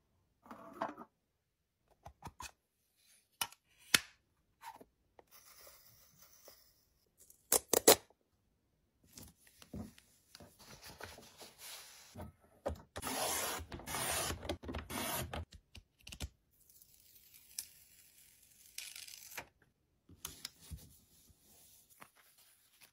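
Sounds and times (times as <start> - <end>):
paper trimmer blade scraping: 13.0 - 15.4.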